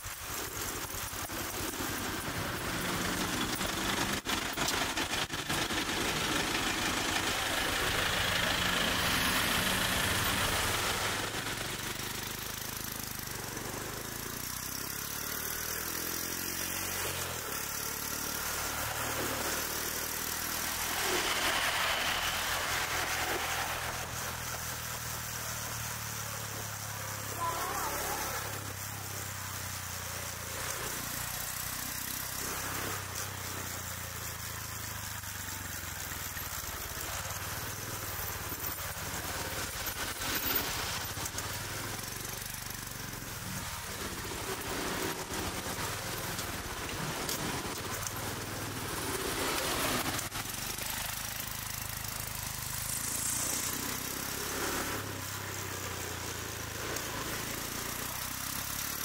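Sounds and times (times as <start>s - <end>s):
scooters and cars passing: 0.0s - 59.0s
steady engine hum: 0.0s - 59.0s
vehicle sweeping past: 5.2s - 12.1s, 15.3s - 26.0s.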